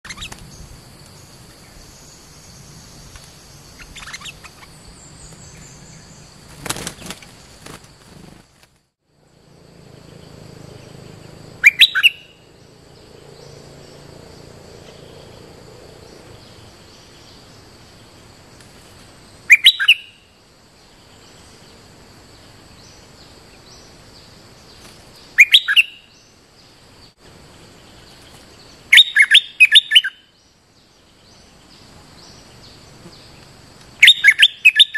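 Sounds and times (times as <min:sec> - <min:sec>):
bulbul calling: 0:00.1 - 0:00.4, 0:03.7 - 0:07.3, 0:10.1 - 0:13.6, 0:19.5 - 0:20.2, 0:25.2 - 0:26.2, 0:28.9 - 0:30.3, 0:34.0 - 0:34.9.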